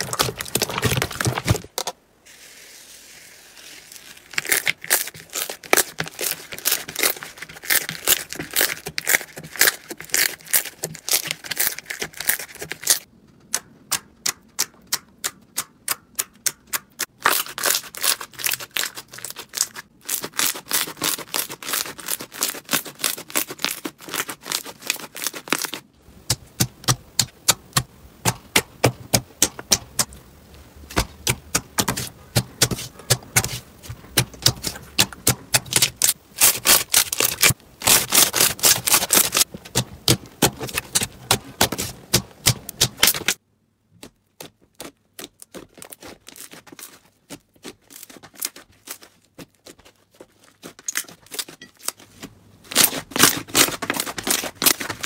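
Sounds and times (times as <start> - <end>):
slime crackling and popping: 0.0 - 1.8, 3.5 - 13.1, 13.9 - 30.2, 30.9 - 43.4.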